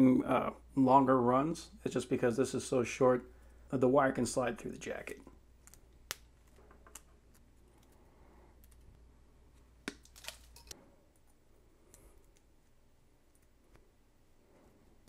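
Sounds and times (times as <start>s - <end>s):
network cable handling: 9.9s - 10.7s.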